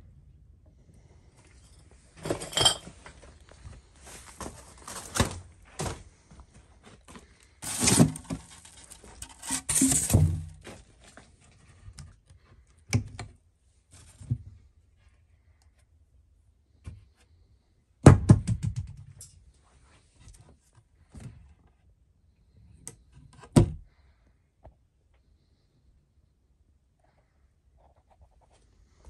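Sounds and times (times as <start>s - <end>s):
household objects clattering: 1.9s - 3.5s, 7.6s - 10.8s.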